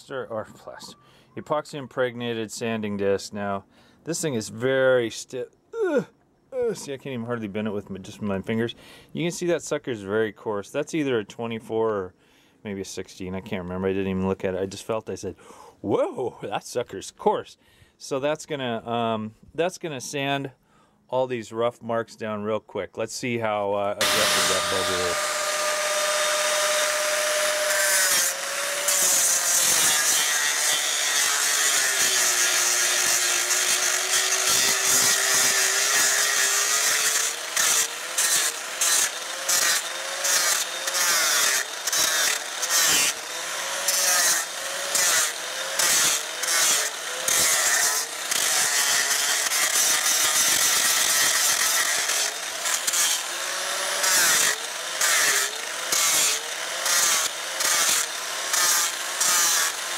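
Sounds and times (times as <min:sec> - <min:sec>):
angle grinder sanding wood: 0:24.0 - 0:59.9.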